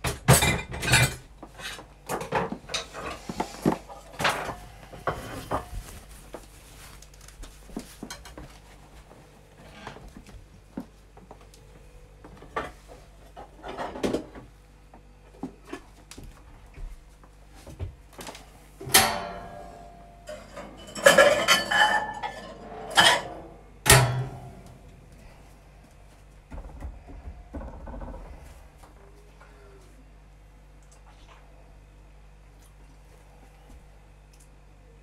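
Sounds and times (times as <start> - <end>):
metal kitchenware clattering: 0.1 - 3.2, 18.8 - 24.8.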